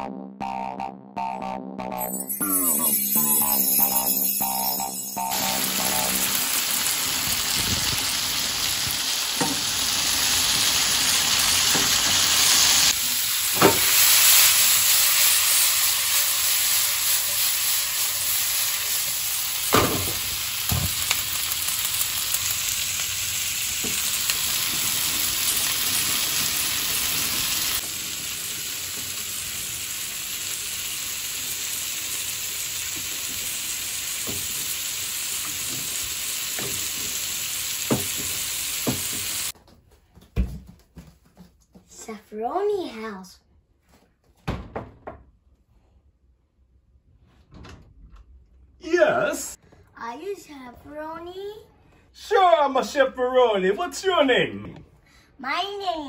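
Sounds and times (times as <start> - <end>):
food sizzling in a frying pan: 2.1 - 39.6.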